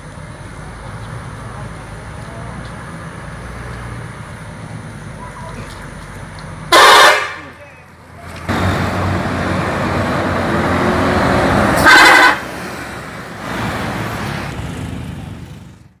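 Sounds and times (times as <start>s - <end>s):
bus passing by: 0.0s - 16.0s
passing vehicle noise: 0.0s - 16.0s
horn blast: 6.7s - 7.6s, 11.6s - 12.5s.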